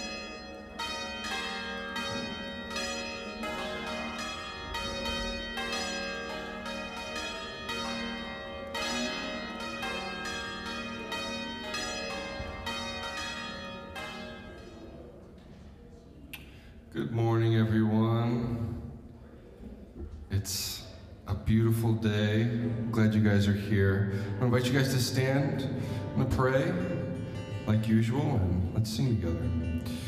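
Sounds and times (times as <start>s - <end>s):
church bells ringing: 0.0s - 15.3s, 24.0s - 29.9s.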